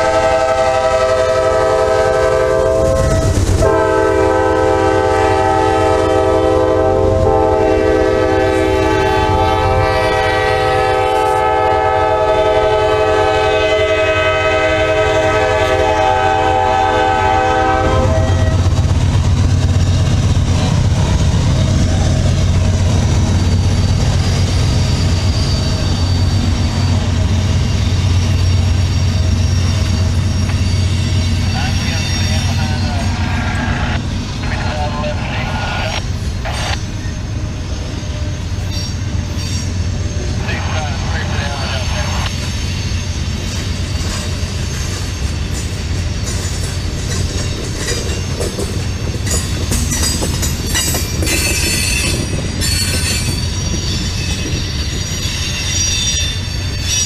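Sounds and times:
locomotive air horn blast: 0.0s - 18.6s
diesel locomotive rumble: 0.0s - 57.0s
wheels clacking over rail joints: 43.4s - 55.0s.

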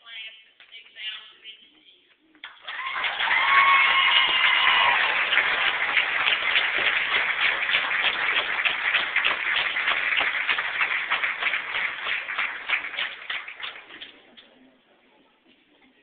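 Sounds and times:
audience applauding: 2.4s - 14.3s.

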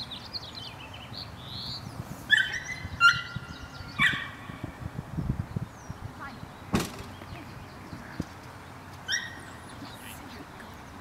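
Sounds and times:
dog yipping: 2.3s - 4.4s, 9.1s - 9.4s.

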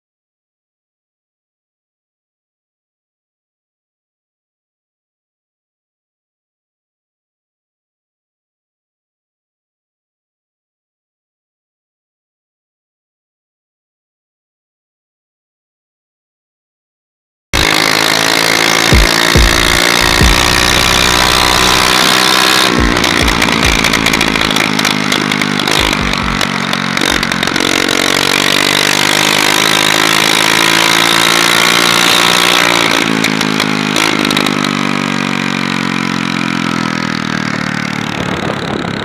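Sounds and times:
scooter engine revving loud: 17.6s - 39.0s.

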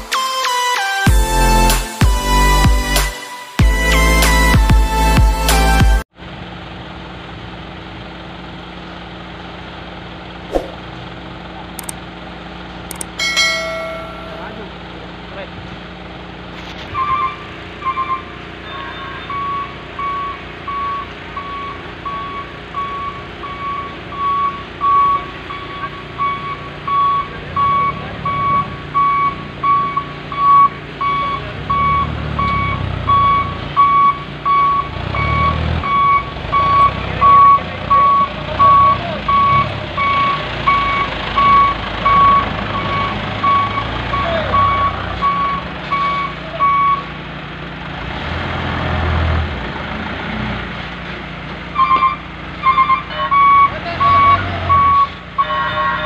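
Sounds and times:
truck engine rumble: 3.7s - 56.0s
truck reversing alarm beeping: 12.9s - 14.9s, 16.8s - 47.4s, 51.7s - 56.0s.

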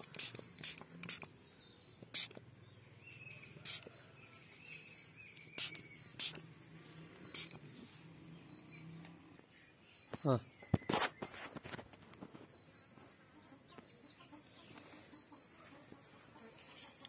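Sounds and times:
insect buzzing and chirping: 0.0s - 17.0s.

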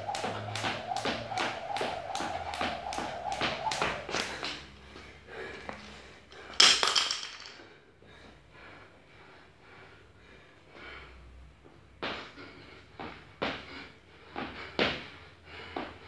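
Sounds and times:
jump rope slap: 0.0s - 4.7s.

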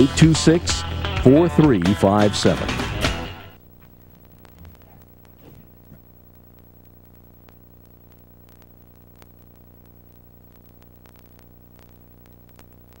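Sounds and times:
low hum: 3.6s - 13.0s.

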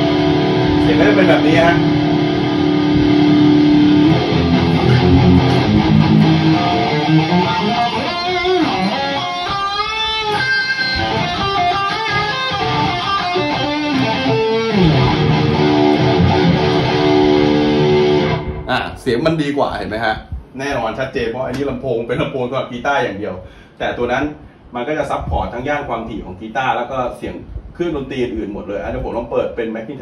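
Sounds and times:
electric guitar notes: 0.0s - 18.7s.

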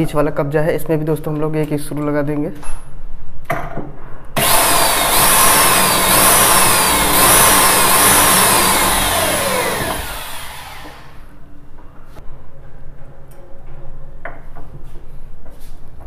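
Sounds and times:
electric drill drilling into wood: 4.4s - 11.3s.

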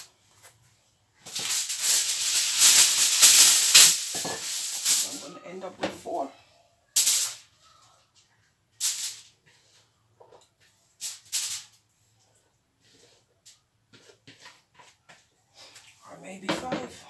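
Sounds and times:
aluminium foil crinkling: 1.2s - 5.6s, 11.0s - 11.8s.

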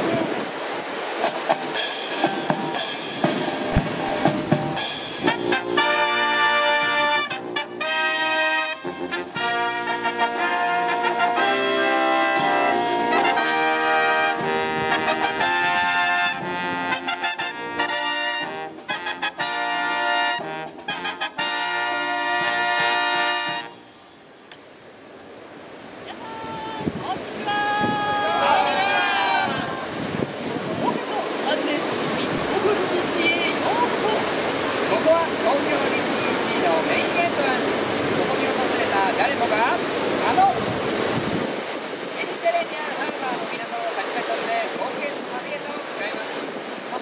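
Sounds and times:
marching drum: 1.2s - 6.2s
brass band fanfare: 1.7s - 24.0s
wind buffeting microphone: 25.8s - 47.0s.

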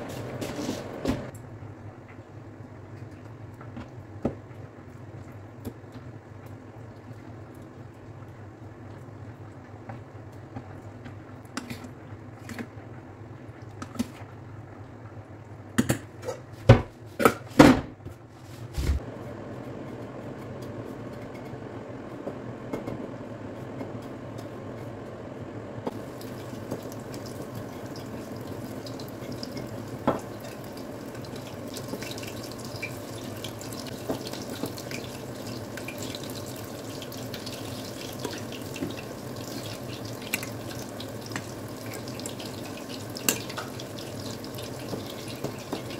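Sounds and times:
oil sizzling and crackling: 25.9s - 45.9s.

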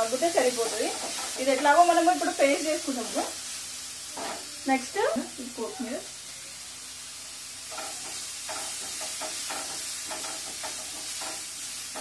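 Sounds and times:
onions sizzling in oil: 0.0s - 12.0s
wooden spatula scraping pan: 0.6s - 1.7s.

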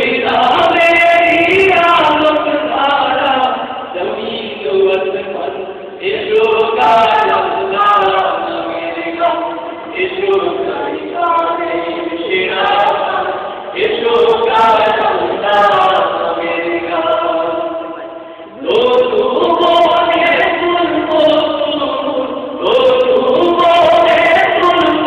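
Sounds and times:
men singing in unison: 0.0s - 25.0s.

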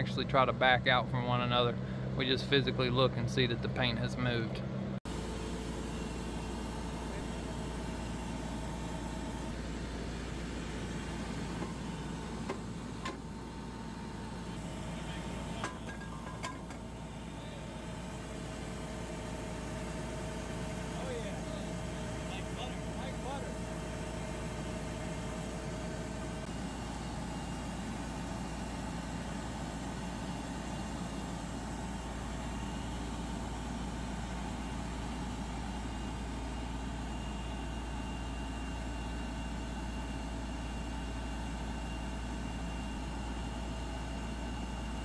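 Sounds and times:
drilling rig engine running: 0.0s - 45.0s.

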